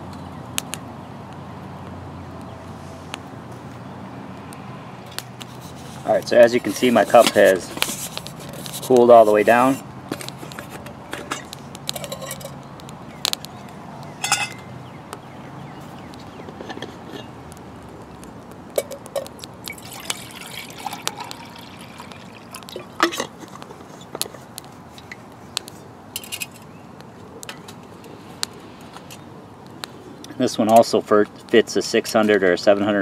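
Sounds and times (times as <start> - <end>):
wood fire crackling and popping: 0.1 - 3.4, 4.3 - 16.6, 17.2 - 31.6
water poured into metal pot: 19.6 - 23.2.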